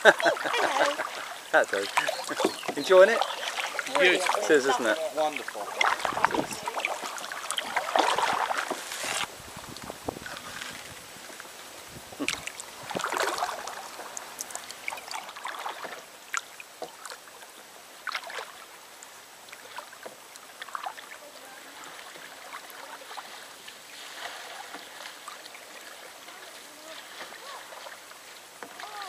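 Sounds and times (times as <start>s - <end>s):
kayak paddle splashing water: 0.0s - 29.0s.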